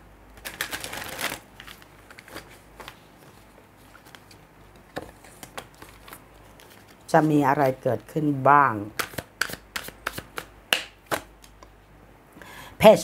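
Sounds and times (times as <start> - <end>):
cards being shuffled: 0.4 - 7.3, 9.0 - 11.6.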